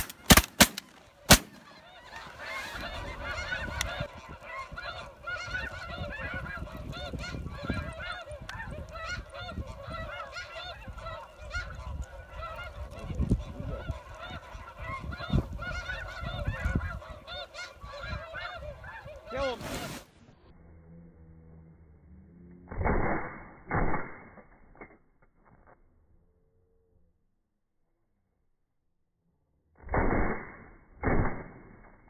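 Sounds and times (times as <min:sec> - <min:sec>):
geese honking: 0:00.0 - 0:20.1.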